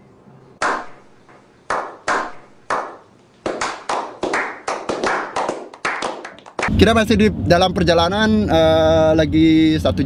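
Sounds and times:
group hand clapping: 0:00.6 - 0:01.0, 0:01.7 - 0:06.7.

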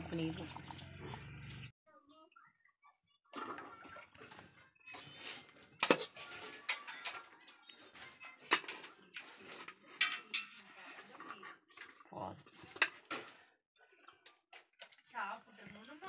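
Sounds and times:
spoon clinking on steel dishes: 0:05.8 - 0:09.3, 0:09.9 - 0:11.0.

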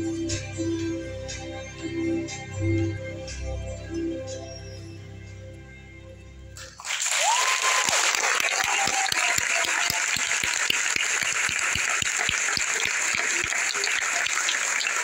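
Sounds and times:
stage music: 0:00.0 - 0:15.0
audience applause: 0:06.8 - 0:15.0.

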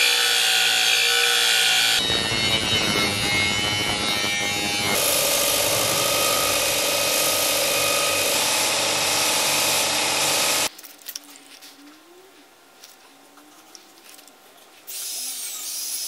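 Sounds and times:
angle grinder cutting steel: 0:00.0 - 0:10.7
belt grinder grinding steel: 0:00.0 - 0:10.7.

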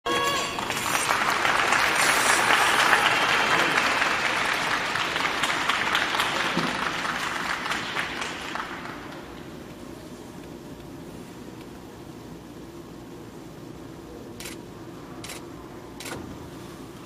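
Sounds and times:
audience applauding: 0:00.4 - 0:09.6.

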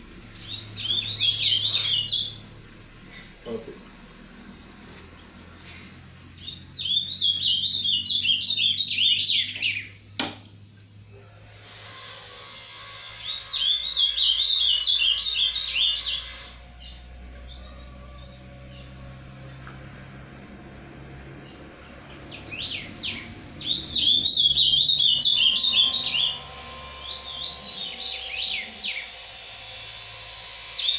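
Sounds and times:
bird singing warbled phrases: 0:00.4 - 0:02.5, 0:06.2 - 0:10.0, 0:13.2 - 0:18.9, 0:21.4 - 0:29.2.

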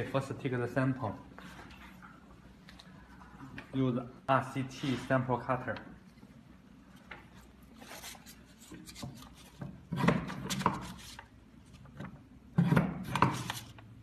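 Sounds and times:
paper rustling and scraping: 0:07.7 - 0:09.6, 0:10.5 - 0:11.3, 0:13.2 - 0:13.8.

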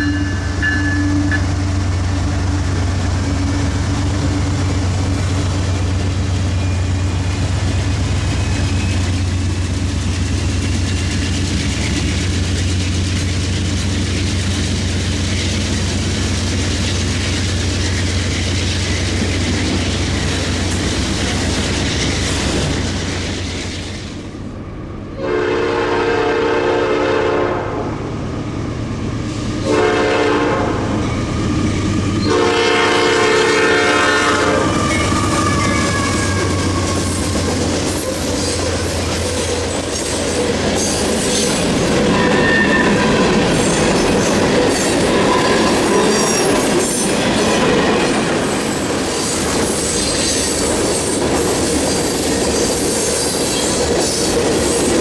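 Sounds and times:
locomotive horn blasts: 0:00.0 - 0:01.6, 0:25.2 - 0:27.8, 0:29.6 - 0:31.0, 0:32.2 - 0:36.8
freight train wheels rumbling: 0:00.0 - 0:55.0.

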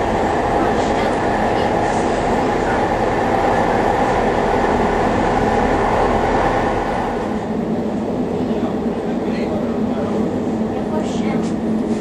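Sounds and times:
railcar engine drone: 0:00.0 - 0:12.0.

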